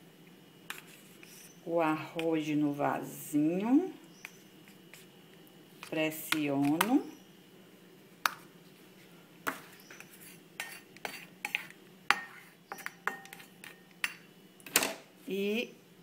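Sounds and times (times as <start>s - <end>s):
plastic spoon clinking on a plate: 11.5s - 14.2s.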